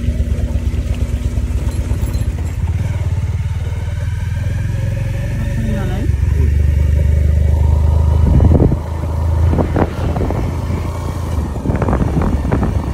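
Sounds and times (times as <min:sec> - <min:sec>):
motorcycle engine running: 0:00.0 - 0:12.9
knocks and rattles: 0:01.4 - 0:03.0.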